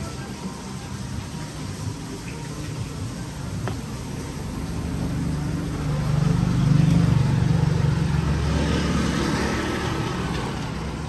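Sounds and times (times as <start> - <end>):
vehicle engine passing: 4.2 - 11.0.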